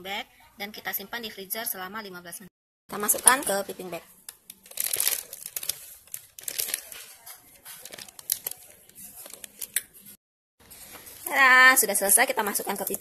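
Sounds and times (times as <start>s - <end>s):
plastic piping bag crinkling: 4.3s - 13.0s.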